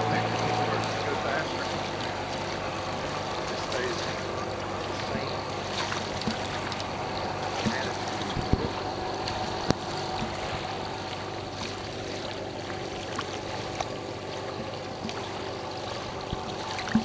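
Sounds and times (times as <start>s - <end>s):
distant motorboat hum: 0.0s - 17.0s
small waves lapping: 0.0s - 17.0s
light ticks: 7.6s - 10.4s.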